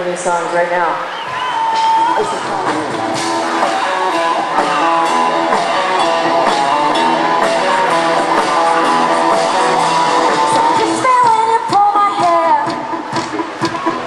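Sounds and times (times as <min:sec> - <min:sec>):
live rock band playing: 0:01.2 - 0:14.0.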